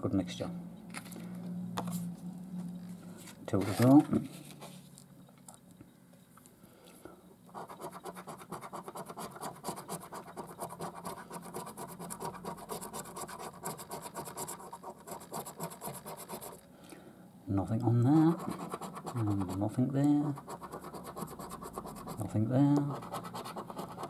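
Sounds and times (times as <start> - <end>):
coin scratching scratch card: 7.5 - 16.6, 18.2 - 24.0.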